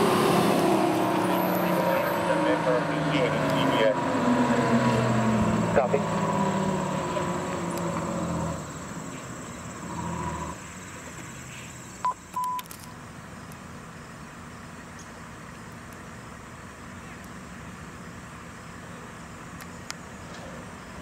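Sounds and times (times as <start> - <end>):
fire engine pulling away: 0.0 - 12.0.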